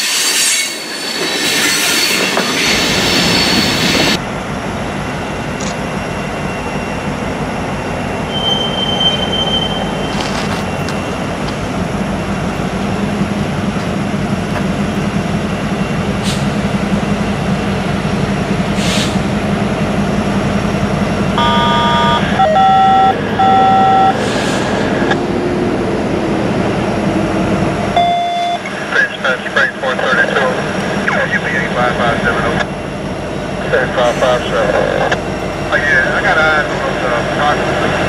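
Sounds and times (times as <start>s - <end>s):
train rumble: 0.0s - 38.0s
locomotive horn blasts: 21.4s - 24.1s.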